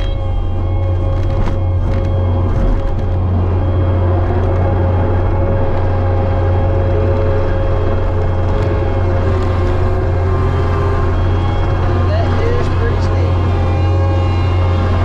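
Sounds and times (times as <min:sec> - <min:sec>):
diesel engine drone: 0:00.0 - 0:15.0
brush cutter mowing grass: 0:08.2 - 0:15.0.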